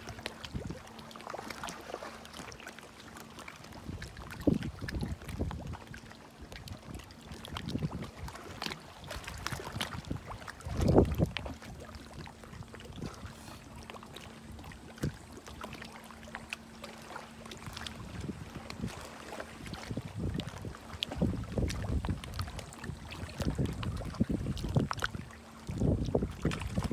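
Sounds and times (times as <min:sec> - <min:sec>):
wind rumbling on microphone: 0:00.0 - 0:00.9, 0:03.7 - 0:13.8, 0:14.5 - 0:15.7, 0:17.6 - 0:26.9
seawater lapping and splashing: 0:00.0 - 0:26.9.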